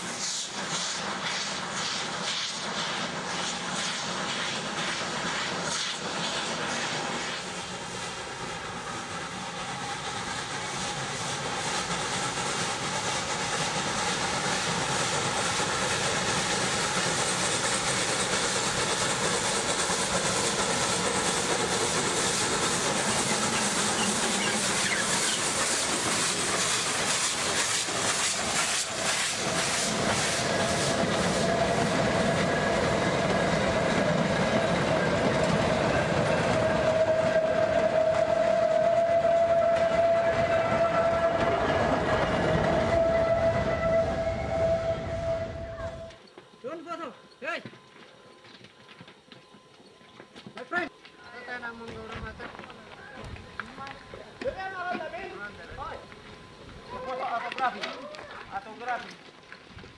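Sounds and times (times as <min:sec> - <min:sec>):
steam hissing: 0:00.0 - 0:47.6
steam locomotive exhaust beats: 0:00.0 - 0:59.9
long shrill tone: 0:36.4 - 0:46.2.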